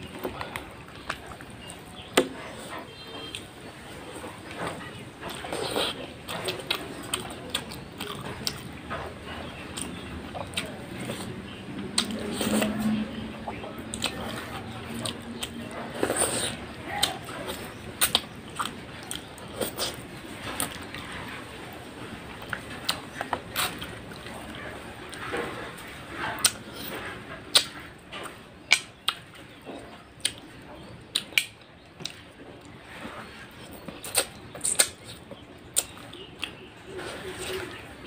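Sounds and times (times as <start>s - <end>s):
wet chewing: 0.0s - 38.0s
lip smacks: 27.5s - 27.8s.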